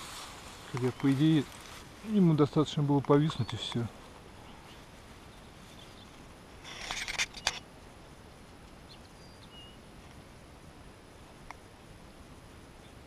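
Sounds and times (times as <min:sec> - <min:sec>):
rustling in tall grass: 0:00.0 - 0:11.3
faint outdoor background: 0:00.0 - 0:13.0.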